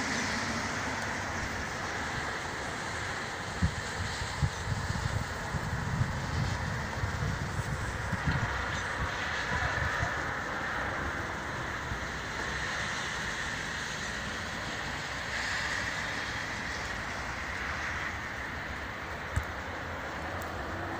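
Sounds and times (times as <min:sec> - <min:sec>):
wind buffeting microphone: 0:01.1 - 0:10.5.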